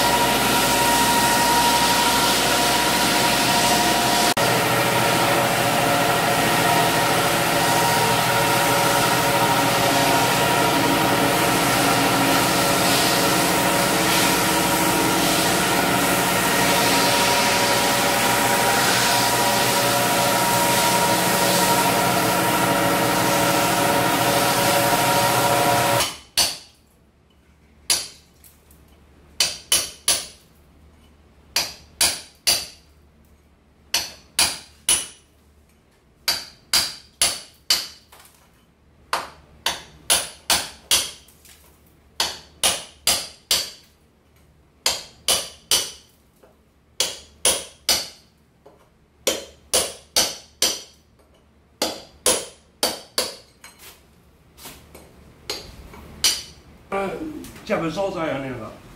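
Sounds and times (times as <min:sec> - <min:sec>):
drum floor sander running: 0:00.0 - 0:26.0
hammer striking chisel: 0:25.8 - 0:26.7, 0:27.9 - 0:28.2, 0:29.4 - 0:30.4, 0:31.5 - 0:32.8, 0:33.9 - 0:35.2, 0:36.3 - 0:38.0, 0:39.1 - 0:41.2, 0:42.2 - 0:43.8, 0:44.8 - 0:46.1, 0:47.0 - 0:53.5, 0:55.0 - 0:56.6.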